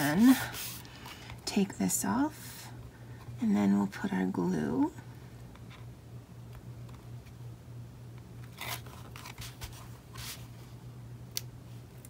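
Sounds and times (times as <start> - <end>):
low steady hum: 0.0 - 12.0
paper rustling: 8.5 - 10.5.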